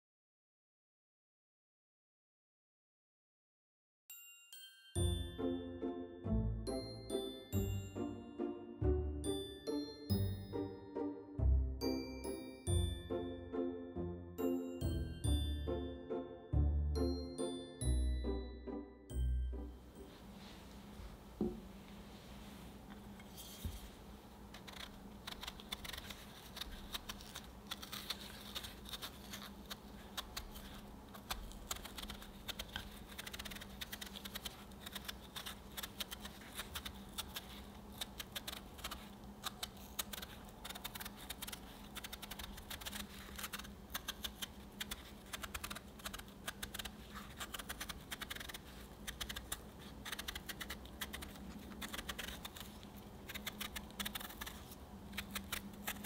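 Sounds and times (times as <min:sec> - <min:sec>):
knife peeling fruit skin: 0:24.5 - 0:56.0.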